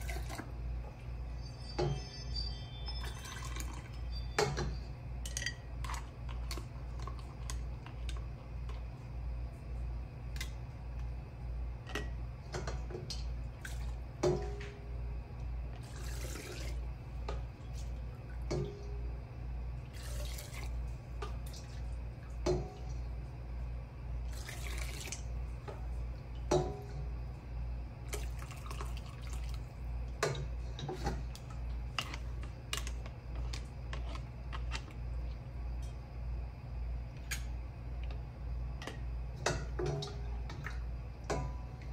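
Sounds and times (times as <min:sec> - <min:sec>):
low pulsing hum: 0:00.0 - 0:41.9
liquid pouring into jars: 0:15.8 - 0:16.8, 0:24.3 - 0:25.3.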